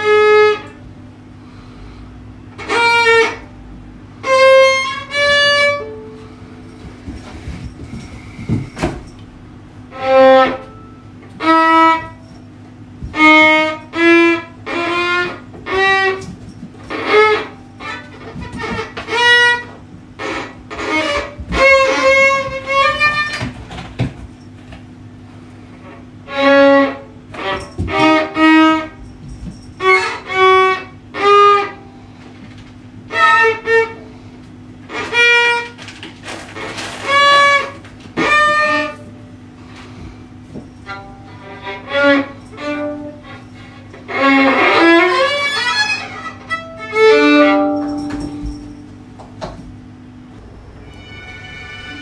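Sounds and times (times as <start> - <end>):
bowed violin notes: 0.0 - 0.8, 2.5 - 6.4, 9.9 - 12.3, 13.0 - 16.3, 16.9 - 23.4, 40.8 - 48.8, 50.3 - 52.0
steady low hum: 0.0 - 52.0.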